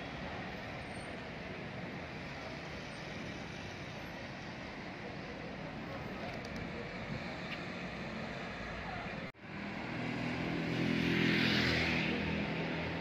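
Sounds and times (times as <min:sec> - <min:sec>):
street traffic passing: 0:00.0 - 0:13.0.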